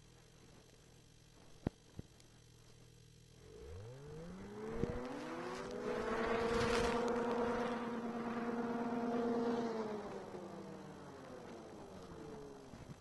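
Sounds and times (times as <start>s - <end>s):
snowmobile engine revving: 3.4s - 13.0s.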